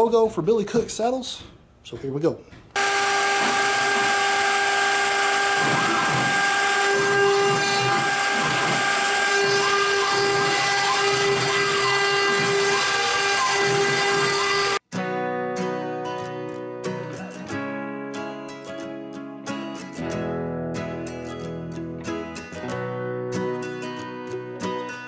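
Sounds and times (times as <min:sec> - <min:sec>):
router spindle whining: 0:02.8 - 0:14.8.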